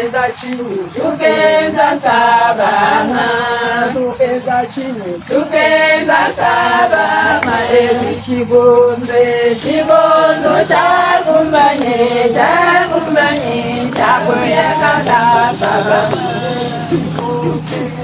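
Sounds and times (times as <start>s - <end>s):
women singing a cappella: 0.0s - 18.0s
hand claps: 0.1s - 2.7s, 6.3s - 7.7s, 10.6s - 18.0s.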